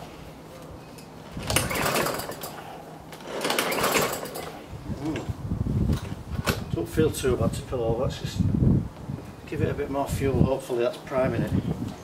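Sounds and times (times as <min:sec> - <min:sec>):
recoil starter whirr: 0:01.3 - 0:04.7.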